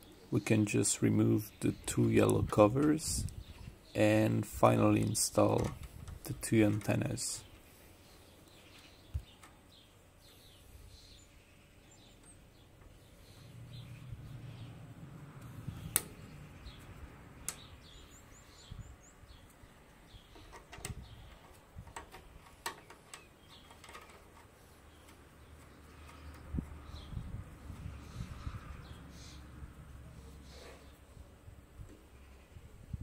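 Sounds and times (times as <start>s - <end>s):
clicks and taps of antenna threading: 15.4s - 16.3s, 17.4s - 17.7s, 20.3s - 27.0s.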